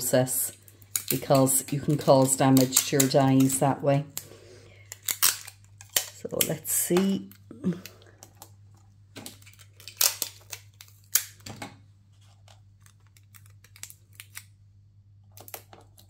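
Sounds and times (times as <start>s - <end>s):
tape clicks and scrapes: 12.2s - 14.5s.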